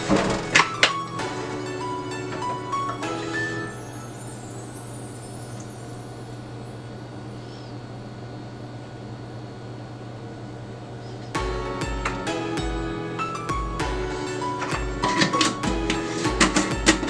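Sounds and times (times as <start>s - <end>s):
background music with deep bass: 0.0s - 4.7s, 11.4s - 17.0s
even hiss: 3.7s - 7.8s.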